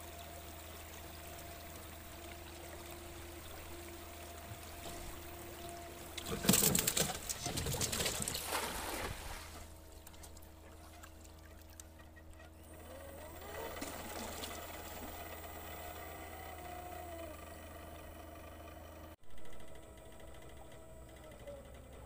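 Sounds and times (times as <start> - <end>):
cast net splashing into water: 6.2 - 10.3.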